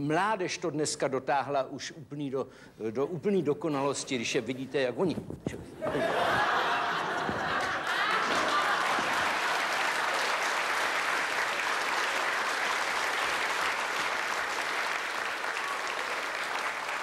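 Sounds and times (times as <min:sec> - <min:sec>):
audience laughing: 0:05.8 - 0:10.1
audience applauding: 0:05.9 - 0:17.0.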